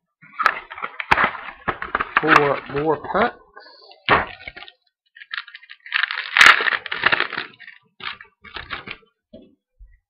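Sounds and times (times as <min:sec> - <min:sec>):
foil wrapper ripping and crinkling: 0:00.3 - 0:03.1, 0:04.1 - 0:09.0.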